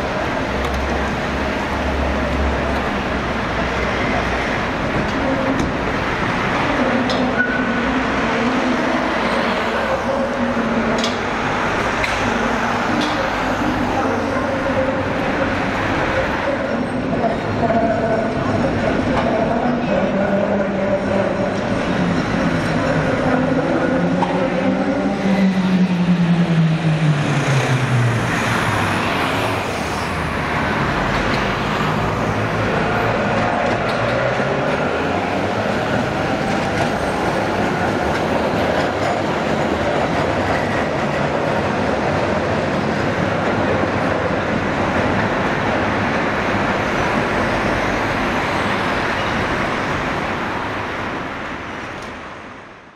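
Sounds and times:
road traffic: 0.0s - 52.9s
trams rolling: 0.0s - 52.9s
cars driving past: 21.6s - 52.8s.

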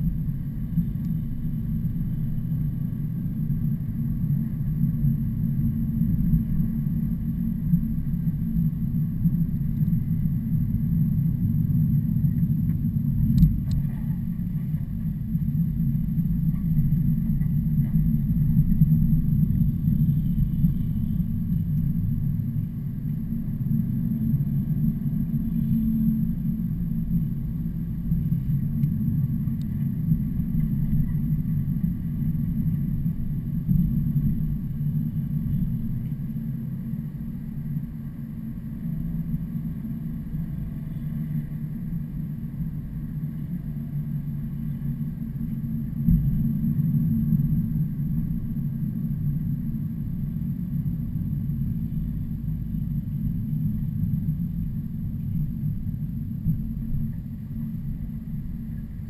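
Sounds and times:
heavy trucks engine and road rumble: 12.6s - 36.0s.

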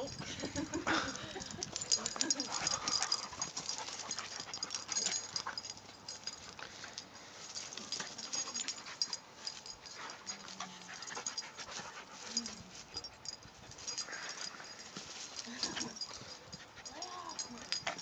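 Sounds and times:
dogs panting: 0.0s - 18.0s
low dog vocal sounds: 0.9s - 5.7s
rustles and clicks of scuffle: 1.7s - 18.0s.

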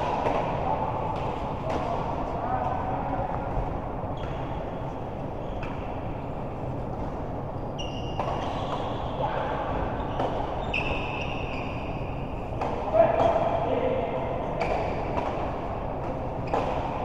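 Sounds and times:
shoes squeaking on court floor: 7.5s - 9.2s, 9.9s - 12.2s, 14.5s - 15.1s.

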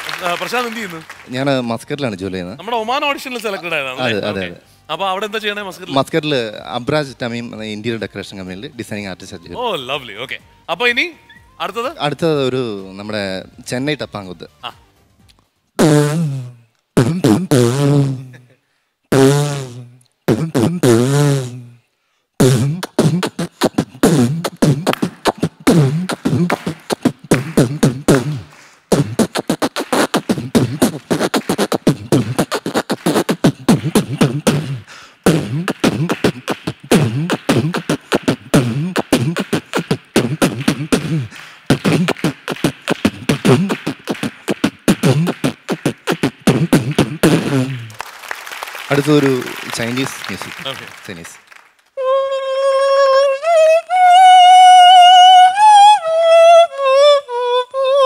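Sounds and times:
person beatboxing: 15.8s - 18.5s, 19.1s - 21.8s, 22.4s - 48.0s
hummed bass lines: 22.4s - 47.9s.

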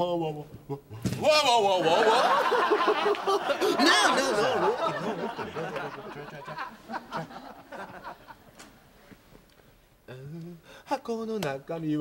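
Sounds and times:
people laughing: 1.6s - 8.8s.

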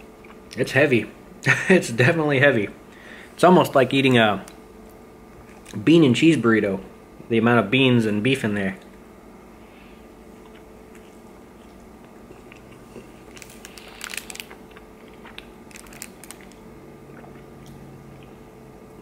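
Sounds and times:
person chewing food: 10.0s - 18.5s.

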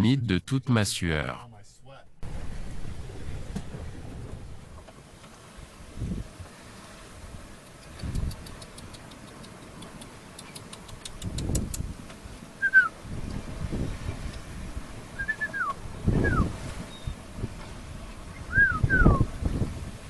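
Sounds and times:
gusting wind: 2.1s - 20.0s
waves rushing past hull: 2.2s - 20.0s
faint high ticks: 7.6s - 12.2s
man whistling: 12.6s - 12.9s, 15.2s - 16.5s, 18.5s - 19.2s.

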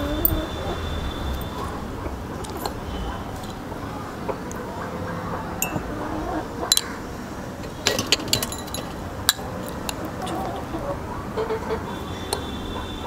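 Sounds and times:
metal spoon clinking against glass bowl: 5.6s - 5.9s, 7.8s - 10.4s.

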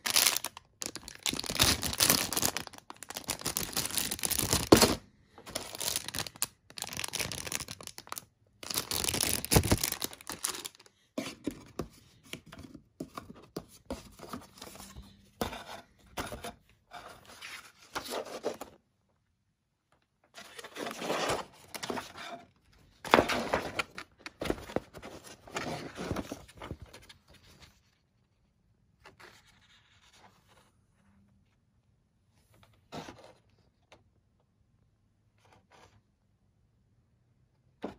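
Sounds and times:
plastic bags crinkling: 0.0s - 4.9s, 5.5s - 10.9s.

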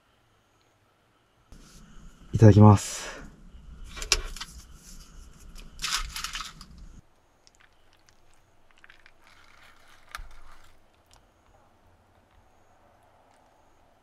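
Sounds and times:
baking paper crinkling: 3.8s - 11.3s.

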